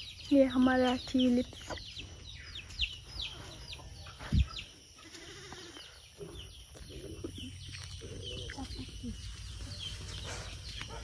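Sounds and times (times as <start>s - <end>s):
small birds chirping: 0.0s - 11.0s
animal bleating: 5.0s - 6.0s.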